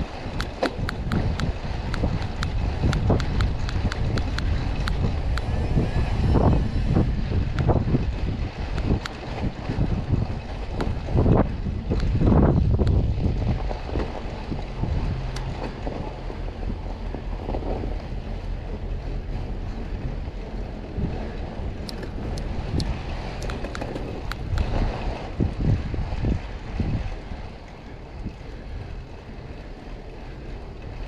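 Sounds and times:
low rumble: 0.0 - 31.0
wind buffeting microphone: 0.0 - 31.0
sharp clicks: 0.4 - 5.5
heavy low thumps: 0.7 - 20.3.

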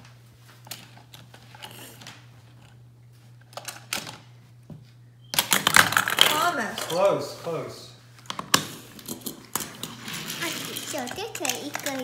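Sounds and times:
faint steady hum: 0.0 - 12.0
toy car rattling through track: 9.1 - 12.0.

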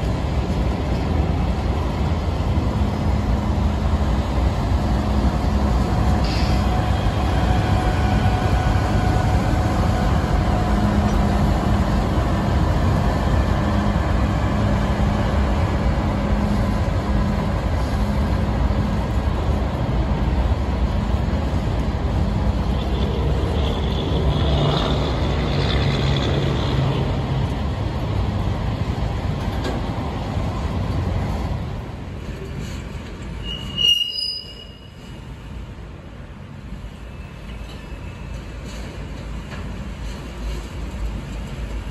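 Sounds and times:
diesel locomotive engine running: 0.0 - 33.5, 35.0 - 41.9
freight cars rumbling on rails: 0.0 - 41.9
high wheel squeal: 33.4 - 35.1.

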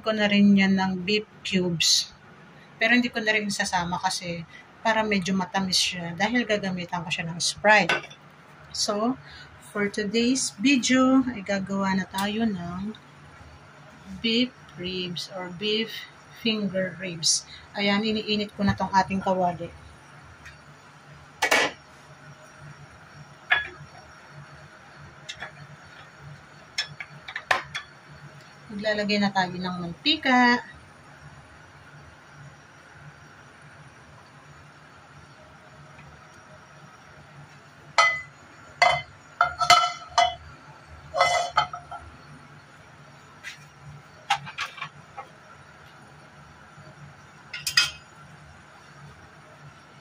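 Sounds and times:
steady low hum: 0.0 - 50.0
cookware clattering: 38.0 - 40.4, 41.1 - 42.0, 44.3 - 45.0, 47.5 - 48.1
frying pan clinking on grate: 38.0 - 40.4, 41.2 - 42.0, 47.5 - 48.1.

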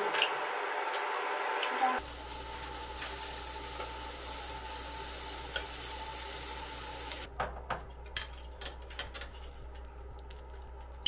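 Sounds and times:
beef sizzling on a grill: 1.2 - 7.3.

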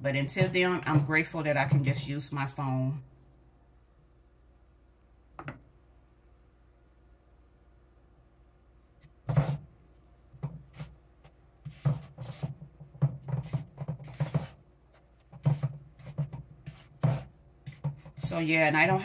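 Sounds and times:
kitchen knocks taps and rustles: 11.7 - 14.5.

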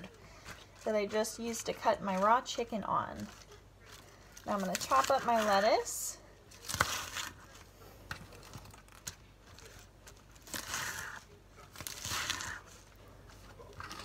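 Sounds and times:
knife chopping lettuce: 6.6 - 7.5, 10.4 - 12.8.

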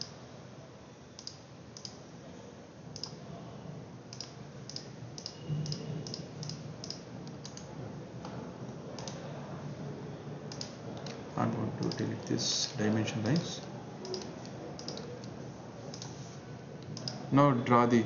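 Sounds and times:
computer mouse clicking: 1.2 - 2.0, 3.0 - 3.2, 4.1 - 7.7, 9.0 - 9.2, 10.5 - 11.2, 11.8 - 12.2, 13.2 - 16.2, 16.8 - 17.2.

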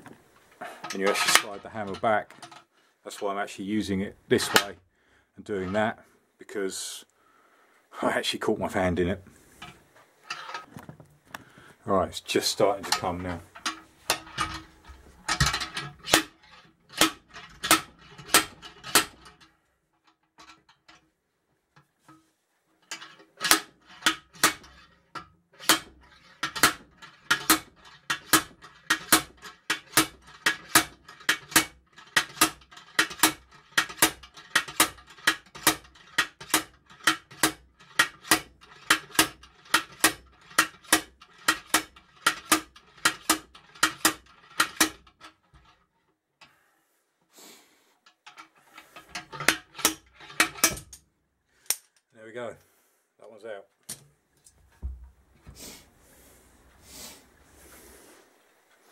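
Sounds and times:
slide hammer clanking on metal: 0.6 - 3.3, 4.3 - 4.7, 12.6 - 19.5, 22.9 - 45.8, 48.3 - 51.0.

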